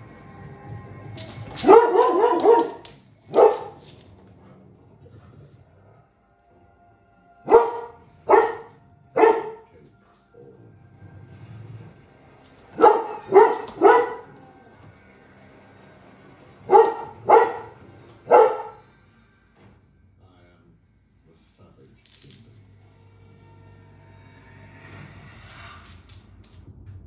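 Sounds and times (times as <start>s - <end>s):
dog barking: 1.6s - 3.8s, 7.4s - 9.7s, 12.7s - 14.4s, 16.6s - 18.9s.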